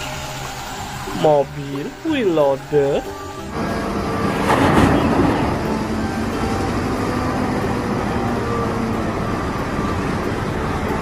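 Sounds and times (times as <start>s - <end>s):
diesel engine running: 0.0s - 11.0s
dirt rushing into truck: 4.2s - 7.0s.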